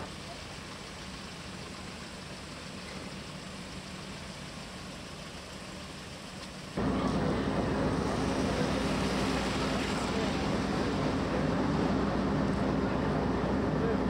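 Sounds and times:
car engine running: 0.0s - 14.0s
ferry engines humming: 0.0s - 14.0s
outdoor rushing noise: 6.7s - 14.0s.

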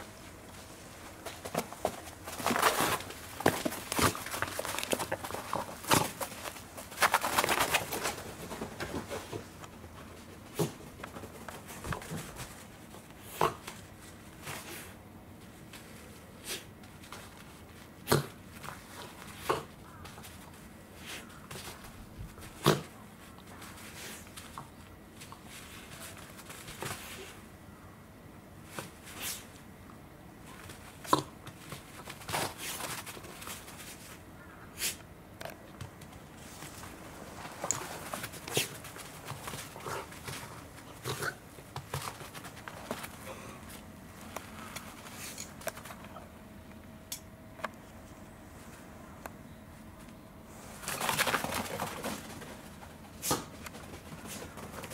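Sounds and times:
dog scuffling: 0.2s - 27.6s, 30.4s - 35.0s, 35.8s - 46.4s, 50.0s - 54.9s.

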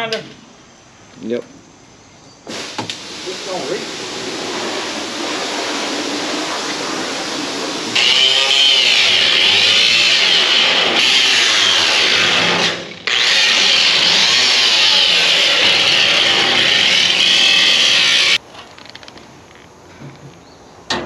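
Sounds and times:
angle grinder grinding steel: 6.1s - 18.4s.

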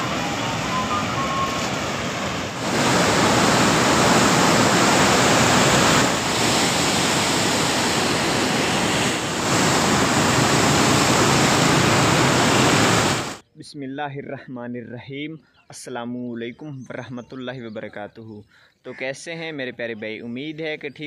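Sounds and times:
roar of rushing floodwater: 0.0s - 13.4s.

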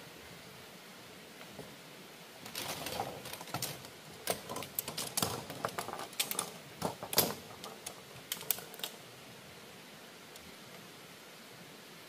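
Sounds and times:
irregular clicks and light knocks: 2.4s - 9.0s.

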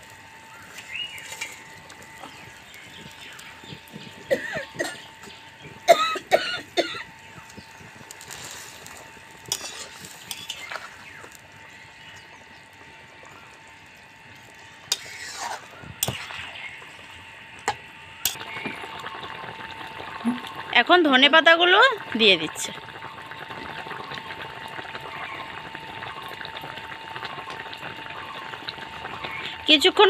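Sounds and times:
curry bubbling: 0.0s - 30.0s
spatula stirring: 8.0s - 11.4s, 14.8s - 16.6s.

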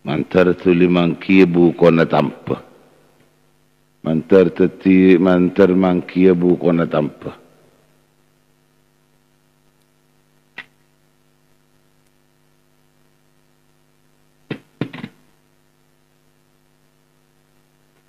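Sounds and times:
electrical mains hum: 0.0s - 18.0s.

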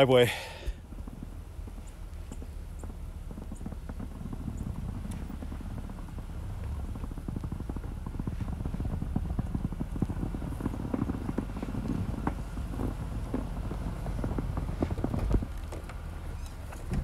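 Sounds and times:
truck engine rumble: 0.0s - 17.0s
tyres crunching over snow and ice: 0.0s - 17.0s.

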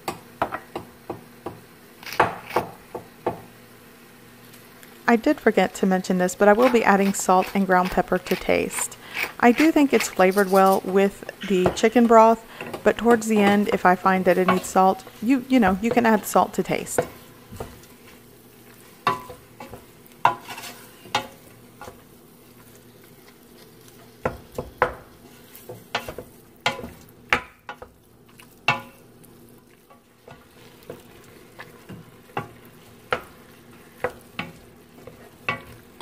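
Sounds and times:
meat sizzling: 0.0s - 36.0s
wooden spoon scraping a pot: 6.3s - 27.0s, 29.7s - 36.0s.

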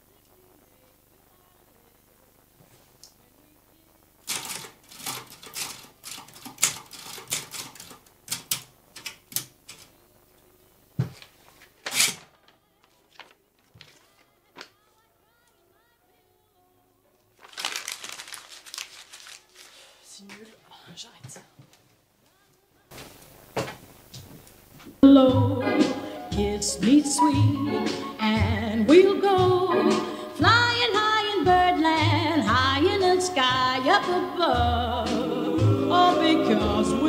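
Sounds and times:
typewriter keys clacking: 4.3s - 9.9s
paper crumpling: 11.2s - 14.8s, 17.4s - 20.5s.

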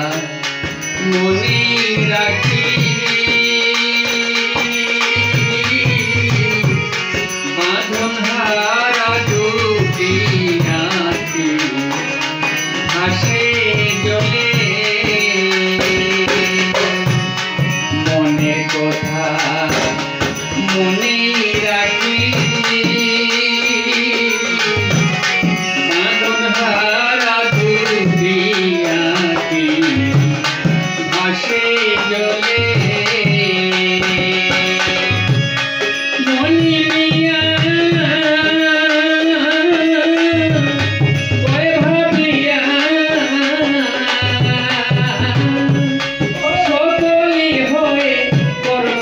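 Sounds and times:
barrel drum beat: 0.0s - 38.3s
harmonium: 0.0s - 49.0s
violin: 0.0s - 49.0s.

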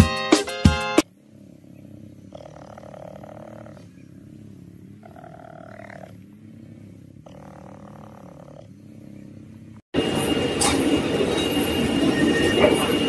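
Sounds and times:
cheetah purring: 0.4s - 10.0s.

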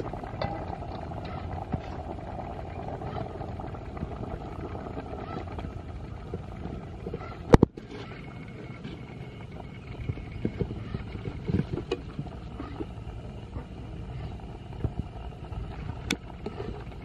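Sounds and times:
pot boiling: 0.0s - 17.0s.

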